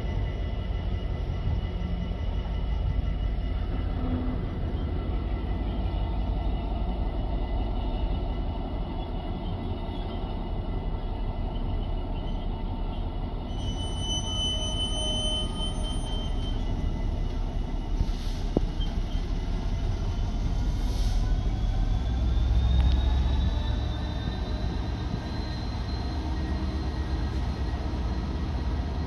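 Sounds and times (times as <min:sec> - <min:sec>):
freight wagon wheels rumbling on rail: 0:00.0 - 0:29.0
high wheel squeals: 0:11.4 - 0:19.6, 0:20.8 - 0:29.0.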